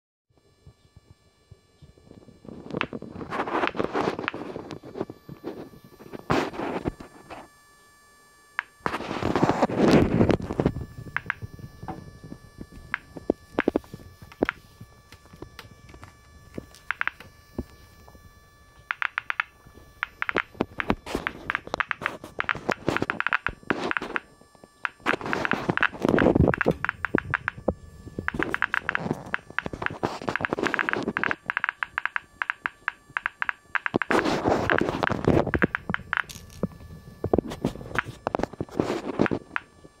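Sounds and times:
geiger counter clicking: 2.7 - 5.6, 8.6 - 8.9, 10.3 - 12.0, 12.6 - 39.8
handling noise: 24.8 - 39.6.

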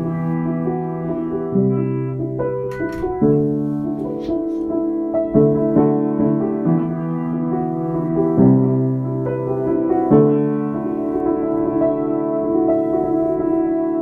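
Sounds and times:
slow keyboard chords: 0.0 - 14.0.

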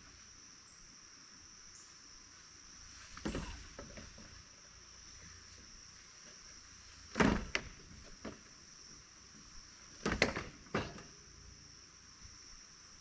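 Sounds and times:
high insect drone: 0.0 - 13.0
wooden spool creaking and knocking: 3.2 - 4.4, 7.1 - 8.6, 9.9 - 11.2.

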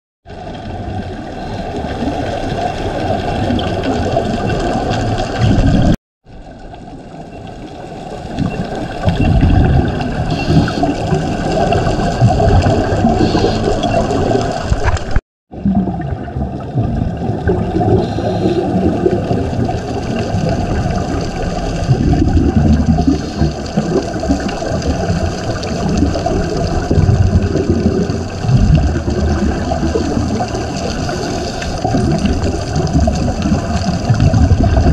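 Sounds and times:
underwater regulator bubbling: 0.9 - 6.0, 8.2 - 34.9.

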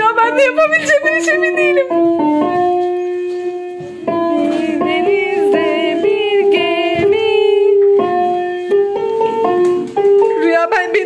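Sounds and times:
electronic keyboard melody: 0.0 - 11.0.

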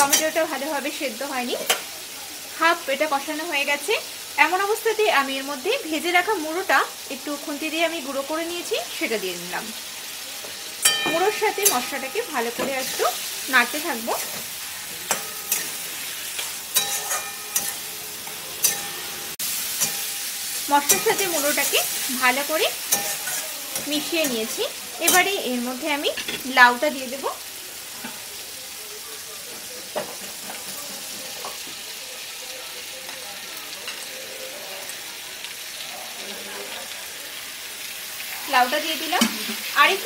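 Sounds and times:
food sizzling: 0.0 - 40.0
metal spatula scraping a pan: 10.5 - 25.4.

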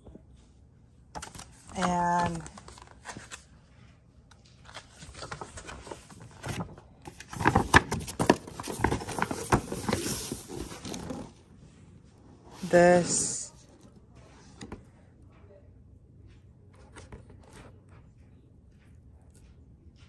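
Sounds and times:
paper rustling and crackling: 1.1 - 11.4.

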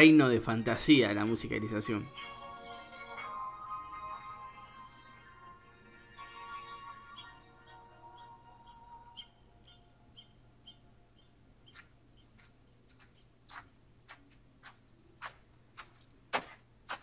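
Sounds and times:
insects chirping: 6.6 - 17.0
insect trill: 11.2 - 16.6.

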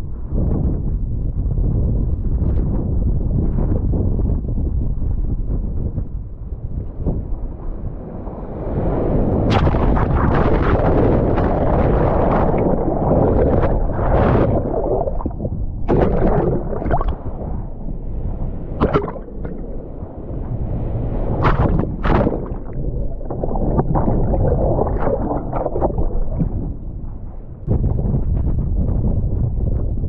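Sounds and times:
wind rumbling on microphone: 0.0 - 30.0
water sloshing and splashing: 9.3 - 27.6.

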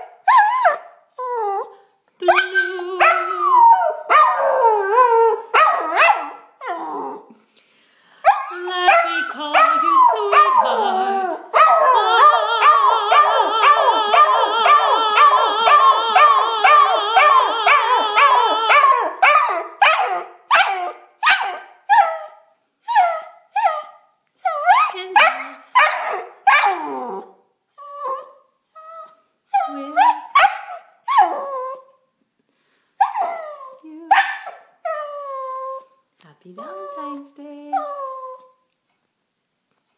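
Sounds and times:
dog yipping: 0.0 - 0.9, 2.3 - 4.7, 5.3 - 6.5, 8.3 - 27.2, 29.0 - 32.0, 33.0 - 35.8
dog howling: 8.3 - 22.3, 24.5 - 28.4.

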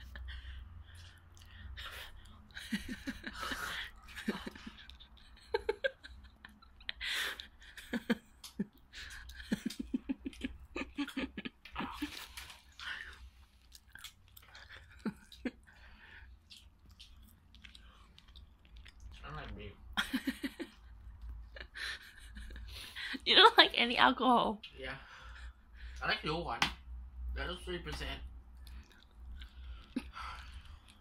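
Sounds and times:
chewing and crunching food: 8.3 - 20.0, 28.4 - 31.0.

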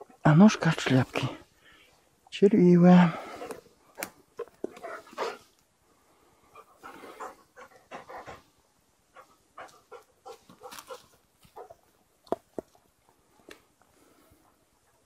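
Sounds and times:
dog sniffing and breathing: 4.7 - 5.6, 6.4 - 11.7.

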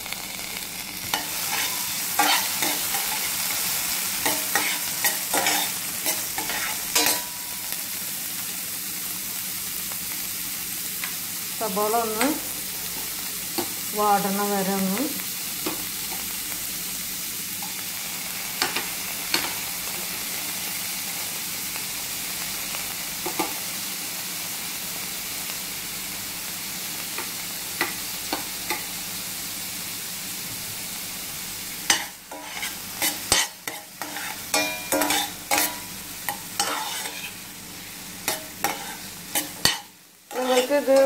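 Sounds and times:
onion sizzling in oil: 0.0 - 41.0
metal spoon scraping pan: 1.1 - 3.4, 4.2 - 7.3, 31.9 - 37.4, 38.2 - 41.0
spoon tapping pan: 31.9 - 37.3.

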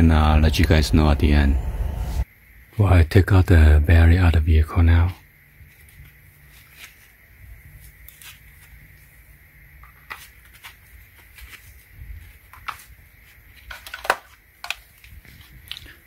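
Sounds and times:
cable handling: 13.6 - 15.8.

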